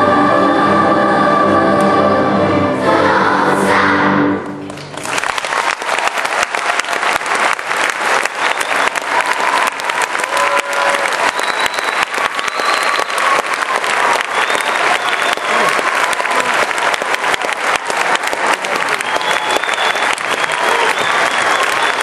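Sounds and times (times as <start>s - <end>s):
choir singing: 0.0s - 4.5s
audience applauding: 4.6s - 22.0s.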